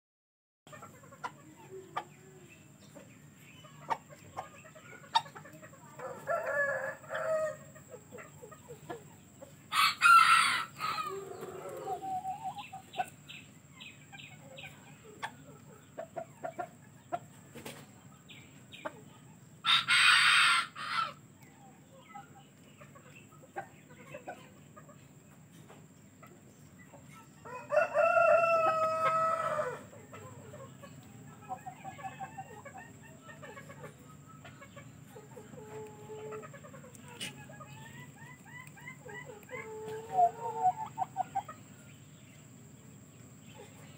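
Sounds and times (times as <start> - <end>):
chickens clucking: 0.7 - 43.9
roosters crowing: 6.0 - 7.8, 9.6 - 12.8, 19.6 - 21.2, 27.4 - 30.4.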